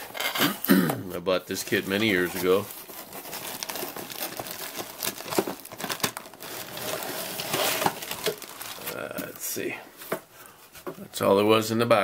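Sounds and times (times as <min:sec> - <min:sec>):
plastic bags crinkling: 0:01.5 - 0:09.7.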